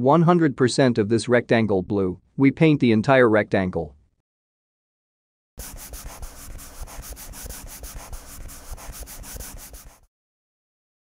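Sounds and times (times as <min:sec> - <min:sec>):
marker scribbling on paper: 0:05.6 - 0:10.1.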